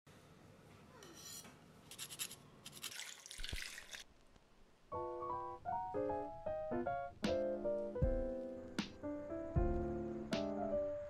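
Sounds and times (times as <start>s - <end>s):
piano background music: 4.9s - 11.0s.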